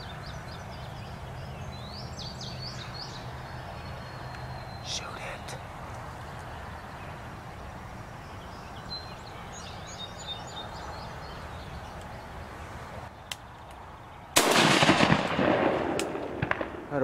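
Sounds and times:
faint bird chirps: 0:00.0 - 0:12.2
loud shotgun shot: 0:14.4 - 0:17.0.

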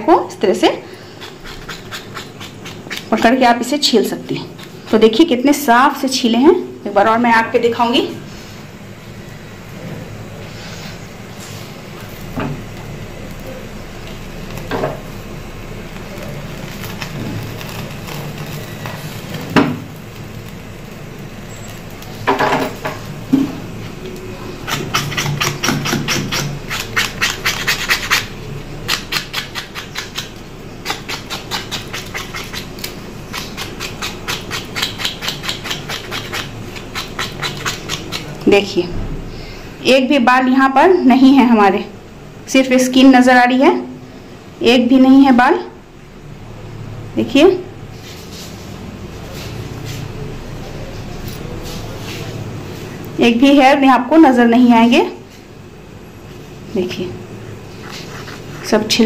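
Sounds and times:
scraping skin: 0:28.9 - 0:38.4, 0:57.7 - 0:58.8.

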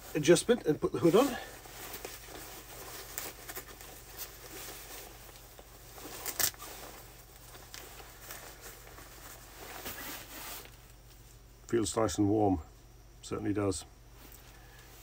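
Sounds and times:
fabric rustling: 0:00.0 - 0:11.0.

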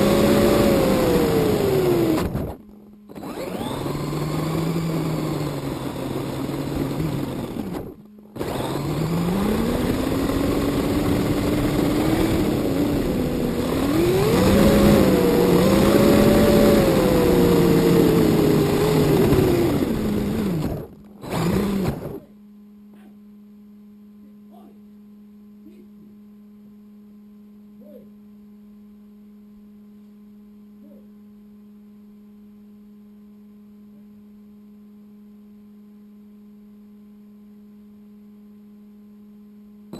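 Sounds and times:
toy car motor whine: 0:00.0 - 0:22.3
steady electrical hum: 0:00.0 - 0:39.9.

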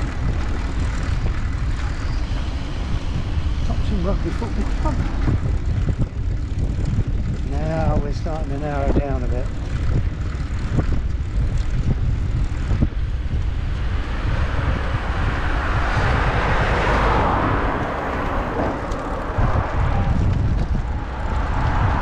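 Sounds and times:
wind rumble on microphone: 0:00.0 - 0:22.0
truck passing: 0:12.2 - 0:22.0.

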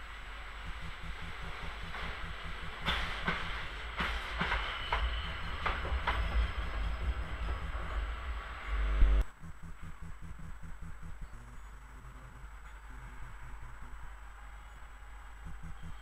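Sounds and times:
locomotive rumble: 0:00.0 - 0:16.0
wheel clacks over rail joints: 0:01.1 - 0:08.0.

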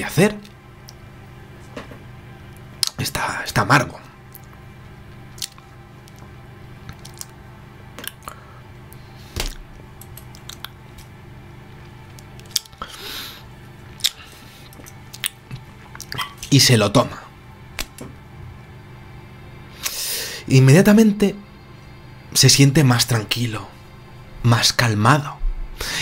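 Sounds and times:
low steady hum: 0:00.0 - 0:26.0
low thud: 0:25.4 - 0:25.8.

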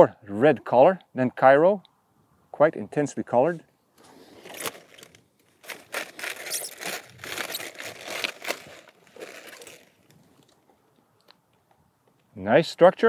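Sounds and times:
knife crunching through cabbage: 0:04.4 - 0:10.4.

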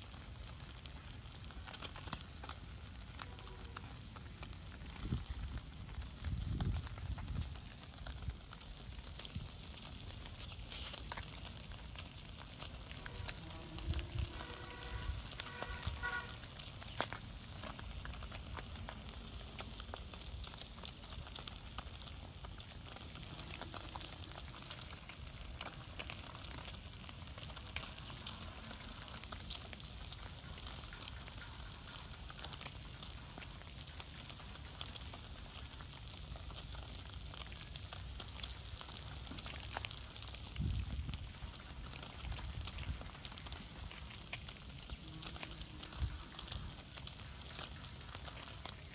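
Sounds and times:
steady hiss of grilling: 0:00.0 - 0:48.9
wood fire crackling and popping: 0:00.0 - 0:48.9.

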